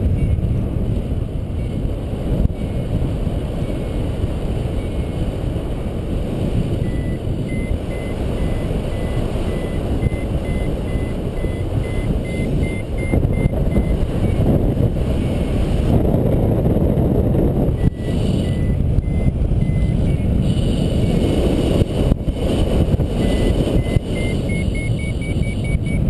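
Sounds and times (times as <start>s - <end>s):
variometer high beeps: 0.0s - 0.4s, 1.5s - 1.9s, 2.5s - 3.0s, 4.7s - 5.3s, 6.7s - 15.5s, 17.6s - 21.3s, 23.0s - 26.0s
wind rushing over microphone: 0.0s - 26.0s.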